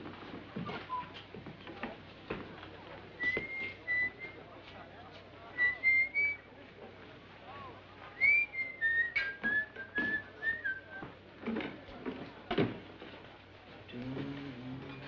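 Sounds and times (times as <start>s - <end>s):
person whistling a tune: 3.2s - 4.4s, 5.6s - 6.4s, 8.2s - 11.0s.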